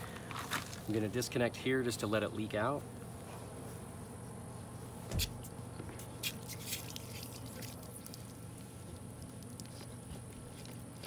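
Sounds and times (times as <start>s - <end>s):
water dripping and leaking: 6.2s - 9.8s.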